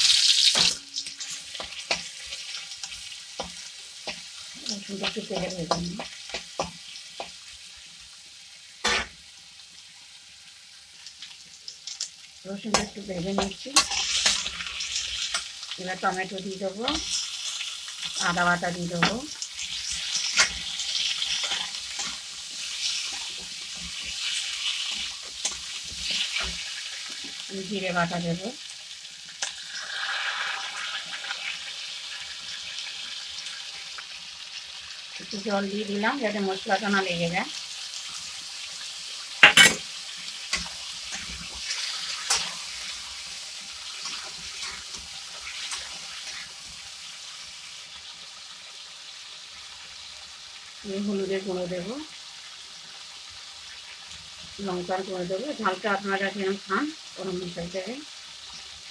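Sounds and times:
vegetables sizzling in hot oil: 0:00.0 - 0:58.9
metal spatula scraping pan: 0:13.4 - 0:14.5.

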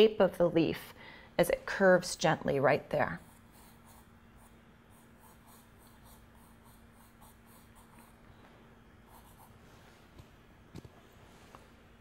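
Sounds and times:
pencil scratching on paper: 0:03.1 - 0:08.2, 0:09.1 - 0:09.6.

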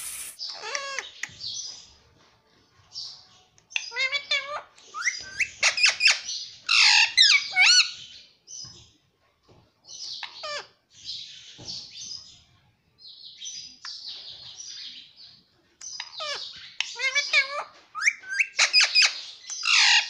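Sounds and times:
parrot squawking and chattering: 0:00.0 - 0:01.3, 0:03.8 - 0:08.0, 0:10.2 - 0:10.8, 0:16.0 - 0:20.0.

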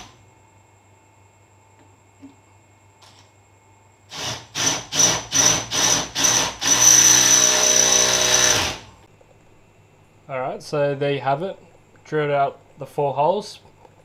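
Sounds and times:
cordless drill boring metal: 0:04.1 - 0:08.9.

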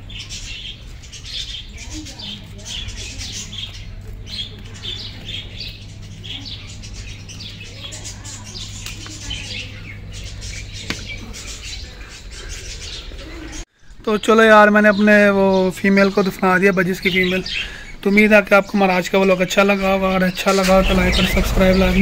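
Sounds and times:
budgerigars chattering: 0:00.0 - 0:13.6, 0:14.3 - 0:22.0
steady low hum: 0:00.0 - 0:14.0, 0:20.6 - 0:22.0.

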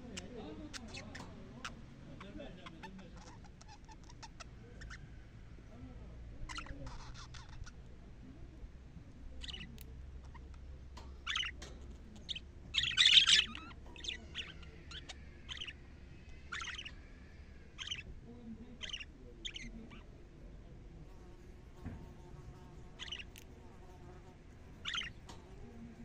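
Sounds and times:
budgerigars chirping: 0:00.0 - 0:05.0, 0:06.5 - 0:07.8, 0:09.3 - 0:17.0, 0:17.6 - 0:18.1, 0:18.8 - 0:20.1, 0:23.0 - 0:23.4, 0:24.8 - 0:25.3.

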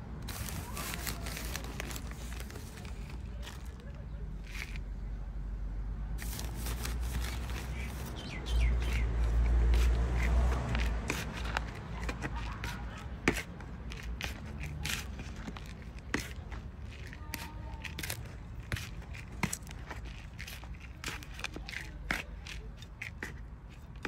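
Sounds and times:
trowel scraping soil: 0:06.2 - 0:24.0.

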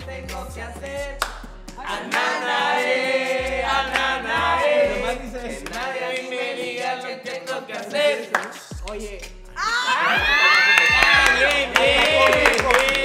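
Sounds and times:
low bass notes: 0:00.0 - 0:02.1, 0:03.4 - 0:05.8, 0:08.8 - 0:09.7, 0:11.0 - 0:13.0
group singing in chorus: 0:01.8 - 0:08.7, 0:11.0 - 0:13.0.

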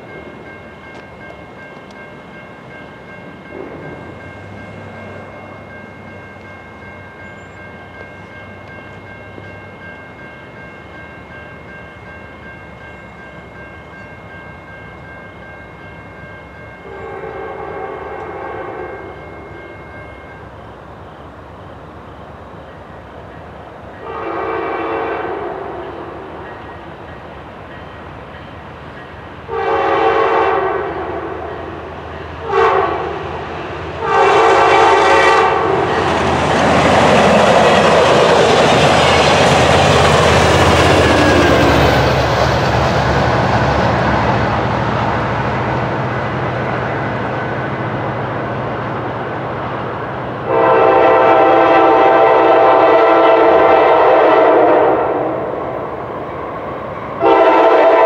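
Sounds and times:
train rushing rumble: 0:00.0 - 0:19.8, 0:20.4 - 0:58.0
locomotive air horn blasts: 0:16.8 - 0:19.2, 0:24.0 - 0:26.3, 0:29.5 - 0:31.7, 0:32.4 - 0:33.4, 0:34.0 - 0:35.9, 0:50.4 - 0:55.6, 0:57.2 - 0:58.0.

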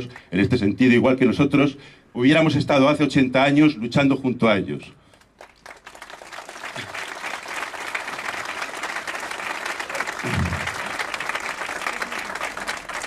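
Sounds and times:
crowd applauding: 0:05.4 - 0:13.0.

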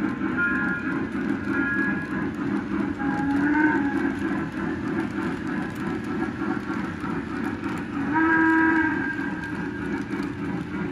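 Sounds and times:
model train wheels clattering: 0:00.0 - 0:10.9
chord-like train whistle: 0:00.4 - 0:02.1, 0:02.9 - 0:04.1, 0:08.0 - 0:09.8.

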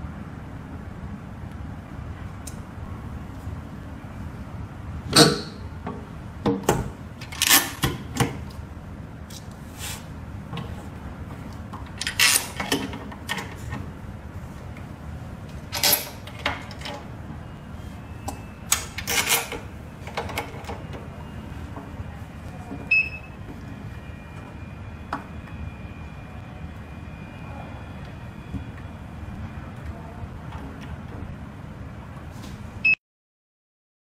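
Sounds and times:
steady low hum: 0:00.0 - 0:33.0
faint high whine: 0:20.6 - 0:30.4.

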